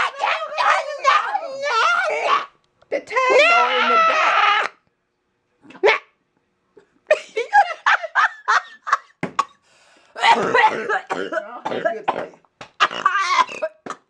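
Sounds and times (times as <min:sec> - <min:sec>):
person laughing: 0:07.1 - 0:09.2
person coughing: 0:10.2 - 0:14.0.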